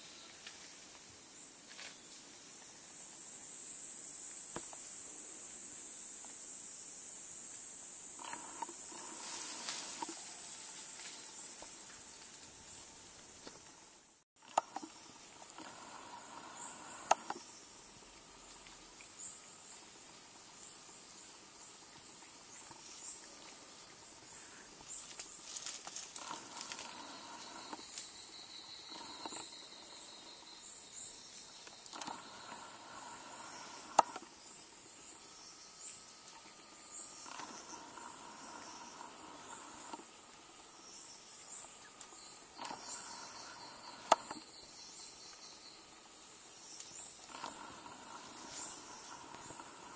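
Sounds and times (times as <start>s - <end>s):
insect buzz: 0.0s - 49.9s
small repeated chirps: 26.2s - 34.4s, 41.6s - 45.9s.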